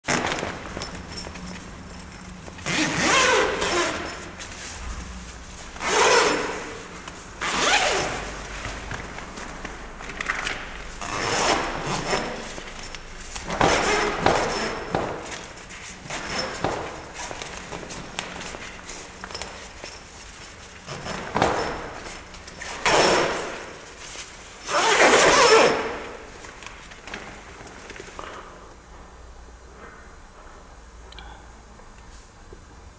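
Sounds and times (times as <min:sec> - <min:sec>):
tent zipper pulled: 0:02.6 - 0:04.9, 0:05.8 - 0:08.4, 0:11.0 - 0:12.6, 0:22.6 - 0:23.8, 0:24.7 - 0:26.0
nylon tent fabric rustling: 0:02.6 - 0:27.8.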